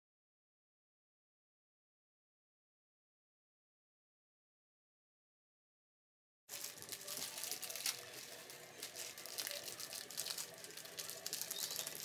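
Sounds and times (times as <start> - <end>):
plastic package crinkling and tearing: 6.5 - 12.0.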